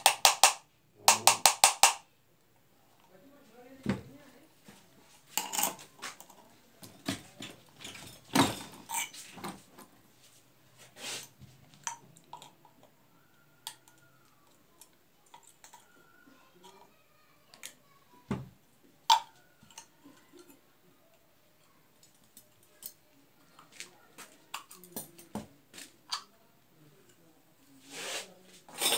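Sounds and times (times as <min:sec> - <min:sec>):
sharp metallic clicks and knocks: 0:00.0 - 0:02.0.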